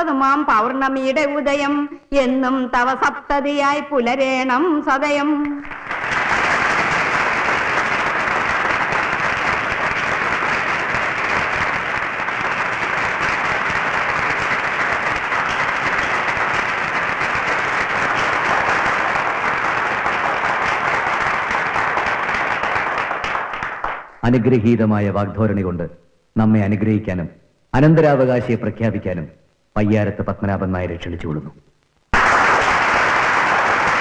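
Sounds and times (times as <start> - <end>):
audience applauding: 5.6 - 24.2, 32.1 - 34.0.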